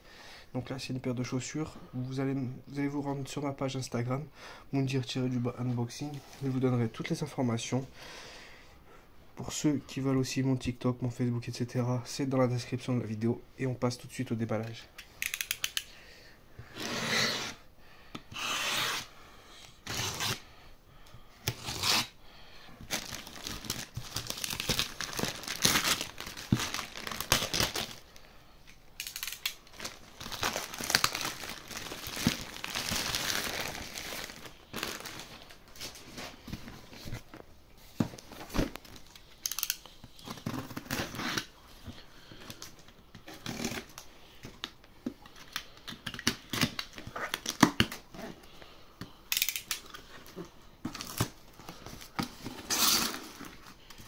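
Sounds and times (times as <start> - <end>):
box cutter cutting tape: 16.7 - 17.6, 18.3 - 19.1, 19.8 - 20.4, 21.5 - 22.2
plastic bag tearing and crinkling: 21.6 - 22.2, 22.9 - 28.0, 29.0 - 35.6.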